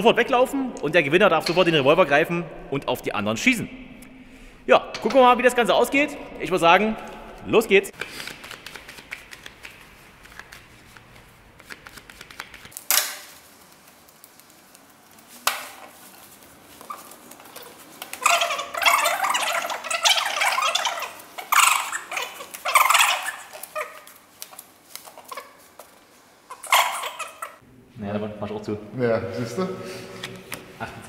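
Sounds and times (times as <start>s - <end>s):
cards rustling while shuffled: 7.9s - 27.6s
cards slapped down: 8.0s - 13.4s
playing cards clicking: 8.0s - 16.0s, 21.1s - 26.0s.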